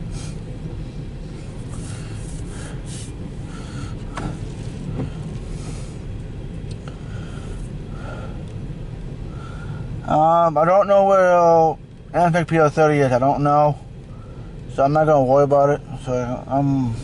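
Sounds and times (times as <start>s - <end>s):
windshield wiper sweeping: 0.0s - 6.8s
car cabin hum: 0.0s - 17.0s.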